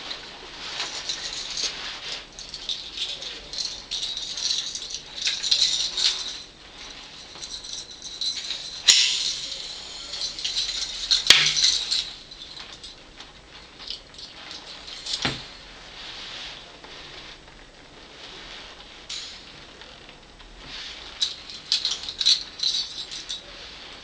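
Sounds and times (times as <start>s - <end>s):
metal fittings rattling and clicking: 0.7s - 13.0s, 13.6s - 15.6s, 21.2s - 23.5s.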